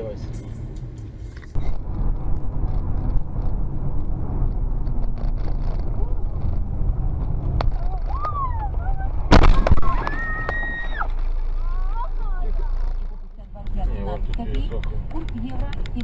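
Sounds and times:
car cabin road rumble: 0:00.0 - 0:16.0
loud car crash: 0:07.6 - 0:11.9.

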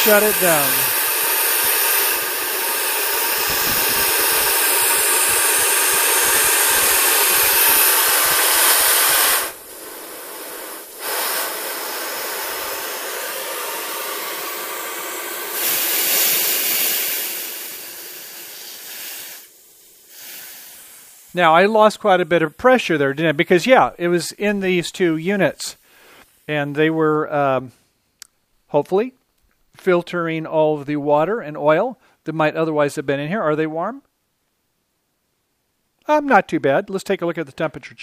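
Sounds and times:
high-pressure air hissing: 0:00.0 - 0:26.8.

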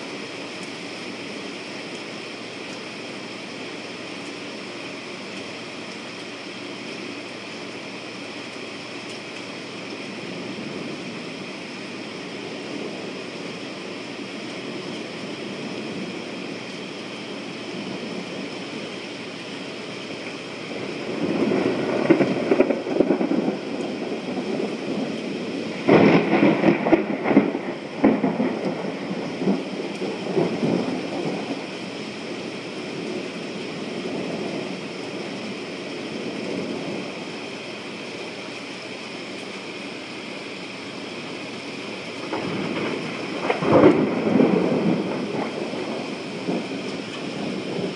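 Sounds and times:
steady rain: 0:00.0 - 0:47.9
thunder rolling: 0:20.4 - 0:37.6, 0:42.2 - 0:47.9.

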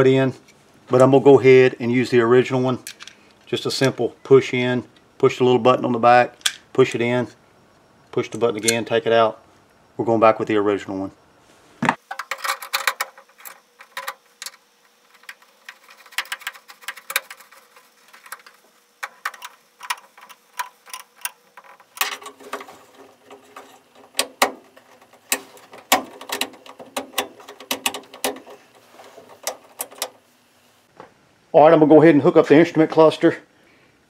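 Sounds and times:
steady low hum: 0:00.0 - 0:34.0
metallic clicks and scrapes: 0:12.0 - 0:30.2.

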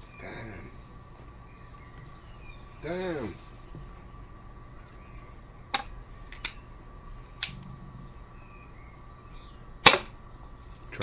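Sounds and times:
air pistol handling clicks: 0:05.8 - 0:06.6
air pistol firing crack: 0:09.8 - 0:10.2.

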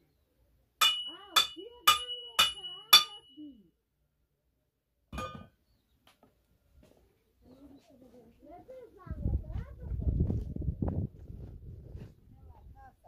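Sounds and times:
hammer striking metal: 0:00.8 - 0:03.4, 0:05.2 - 0:05.5.

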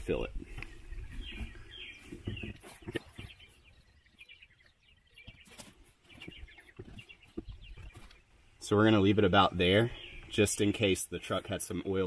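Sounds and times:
small birds chirping: 0:00.0 - 0:12.0
faint knocks and handling noises: 0:00.5 - 0:03.4.

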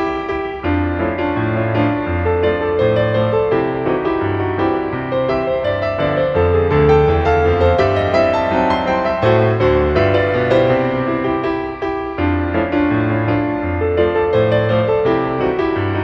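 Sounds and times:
instrumental piano music: 0:00.0 - 0:16.0.

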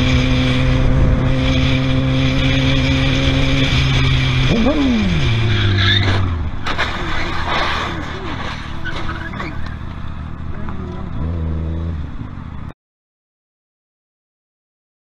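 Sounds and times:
motorcycle engine running: 0:00.0 - 0:05.5, 0:09.7 - 0:12.5
wind and road noise: 0:00.0 - 0:12.8
car crash bang: 0:06.0 - 0:09.7.

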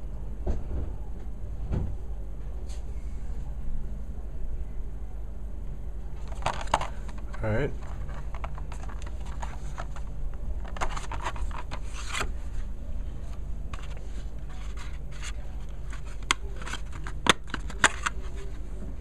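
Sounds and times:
plastic packaging rustling: 0:06.2 - 0:12.6, 0:13.7 - 0:18.6.

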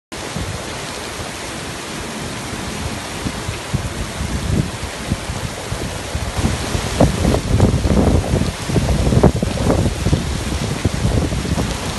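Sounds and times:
heavy rain on pavement: 0:00.1 - 0:11.9
wind buffeting microphone: 0:00.2 - 0:11.9.

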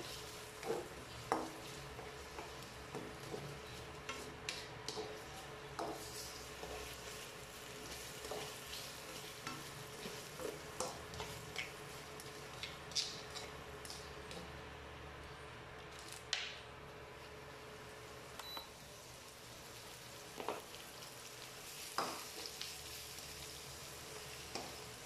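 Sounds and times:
spatula scraping and tapping pan: 0:00.0 - 0:07.2, 0:07.8 - 0:14.4
onions sizzling in a wok: 0:00.0 - 0:14.4, 0:17.2 - 0:25.0.

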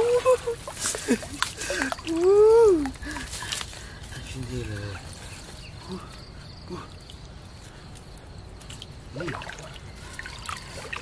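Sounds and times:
water trickling and dripping: 0:00.0 - 0:11.0
small clicks and splashes: 0:00.7 - 0:05.3, 0:07.9 - 0:11.0.

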